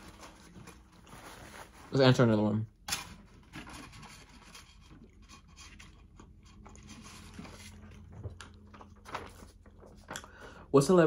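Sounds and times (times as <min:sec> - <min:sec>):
food packaging rustling: 0:00.0 - 0:10.5
faint chewing: 0:03.8 - 0:09.0.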